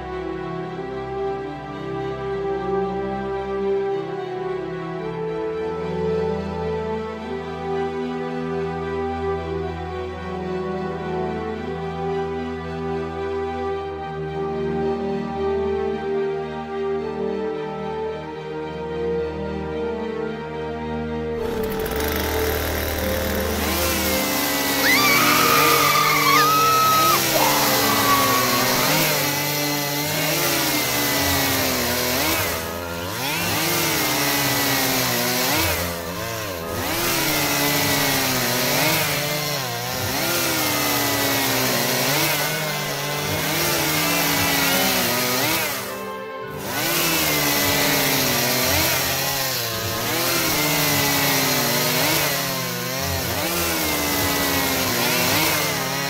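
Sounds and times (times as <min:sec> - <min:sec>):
electric drill whining: 0:21.4 - 0:29.8.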